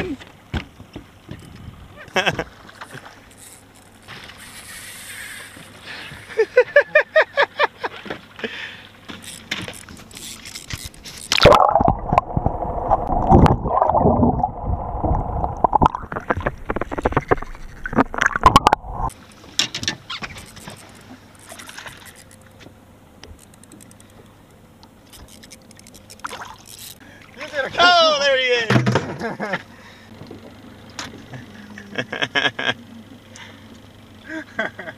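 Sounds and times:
water gurgling and sloshing: 7.8 - 27.8
light water splashes: 25.0 - 27.8.

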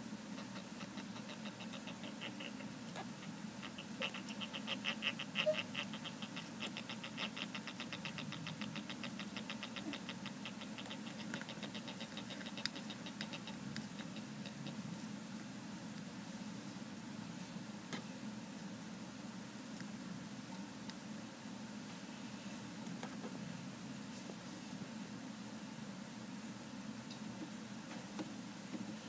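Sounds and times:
hermit crabs chirping: 0.0 - 15.1.

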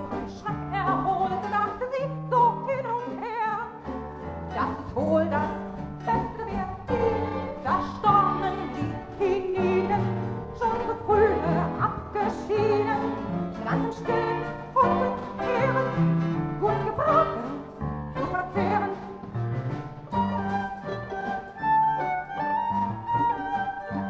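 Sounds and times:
orchestral music: 4.6 - 24.0.

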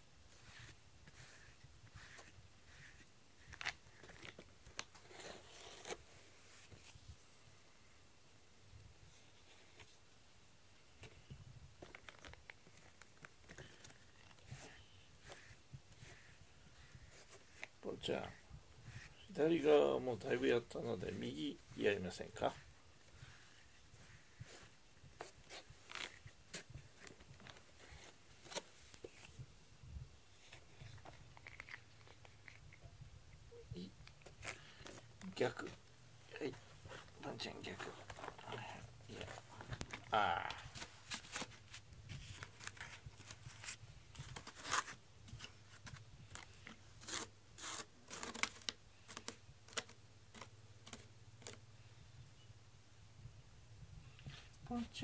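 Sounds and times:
fingers scratching cardboard: 0.4 - 4.3.

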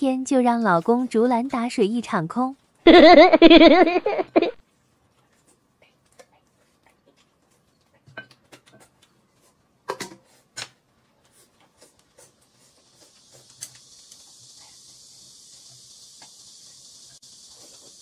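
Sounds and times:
steady high hiss: 2.9 - 4.6, 12.5 - 18.0
tableware clicks and knocks: 8.1 - 9.0.

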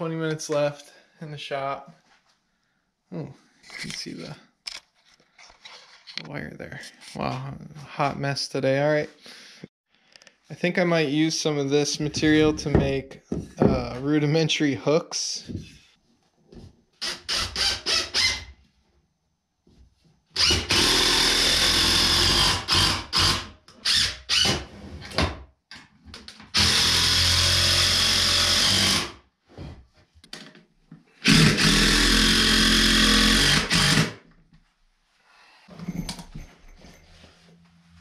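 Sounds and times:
cordless drill driving screws: 20.4 - 24.5, 26.5 - 29.1, 31.2 - 34.1.

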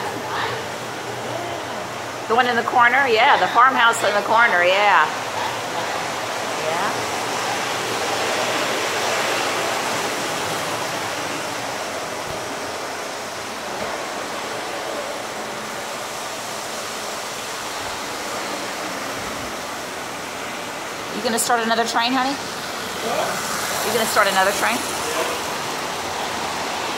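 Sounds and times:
model train running on track: 6.0 - 10.6, 19.8 - 26.9.

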